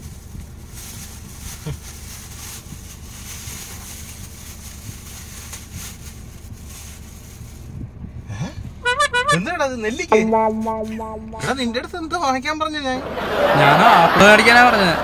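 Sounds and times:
plastic bag crinkling: 0.0 - 7.6
low hum: 10.0 - 12.1.

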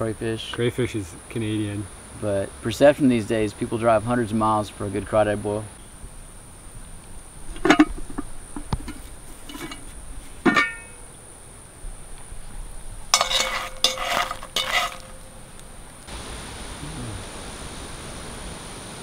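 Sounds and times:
crickets trilling: 0.0 - 18.8
iron pot lid clanking: 7.5 - 11.1, 13.1 - 15.4.

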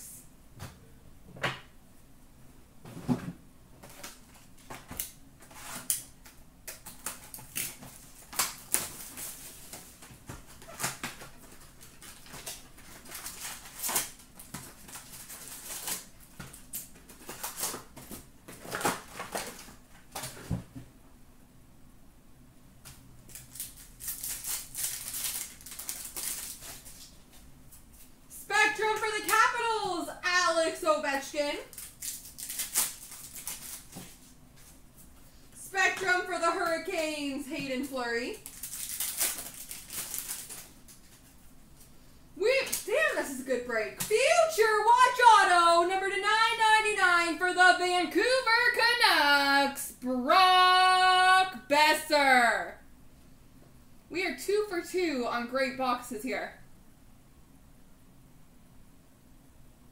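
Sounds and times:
faint steady hum: 0.0 - 59.9
wrappers crinkling and tearing: 3.8 - 20.4, 23.3 - 27.2, 31.6 - 34.4, 37.8 - 41.4
cards clicking and rustling: 22.9 - 27.1, 31.7 - 34.7, 38.4 - 41.3.

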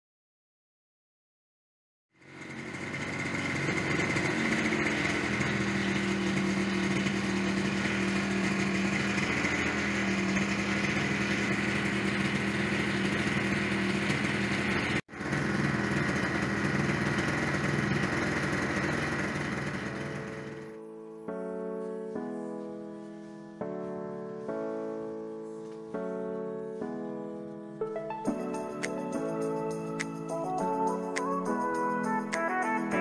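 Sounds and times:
scooter engine idling: 2.2 - 20.8.

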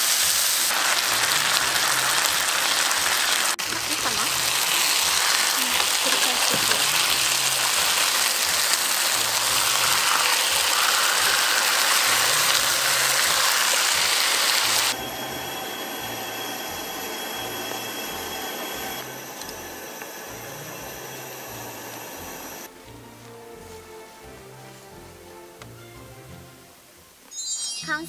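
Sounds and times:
chicken sizzling in a frying pan: 0.0 - 22.4
soft background music: 19.0 - 27.3.

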